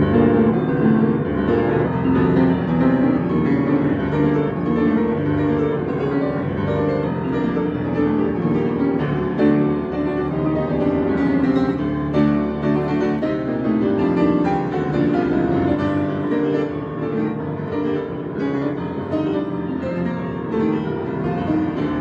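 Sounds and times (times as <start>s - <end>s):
fast agitated solo piano: 0.0s - 22.0s.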